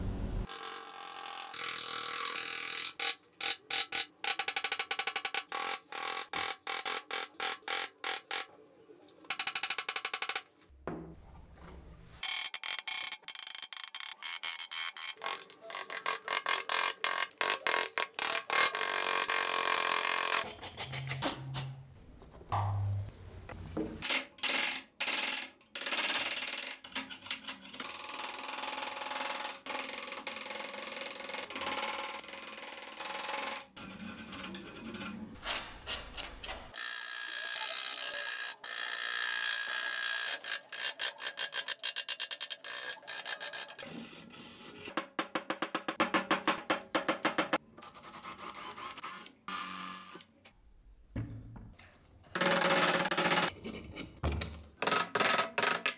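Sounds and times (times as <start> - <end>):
chisels cutting and scraping wood: 0.5 - 8.5, 12.2 - 21.7, 33.3 - 45.8.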